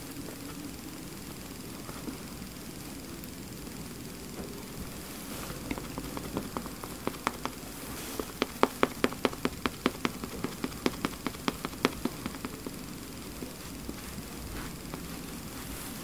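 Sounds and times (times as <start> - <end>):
makeup sponge tapping on face: 5.7 - 12.8.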